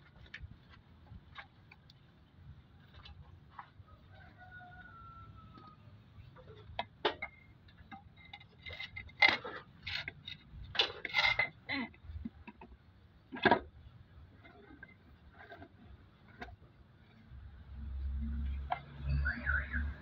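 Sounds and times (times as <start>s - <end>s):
metal clinking and scraping on housing: 6.4s - 12.6s, 13.3s - 16.7s.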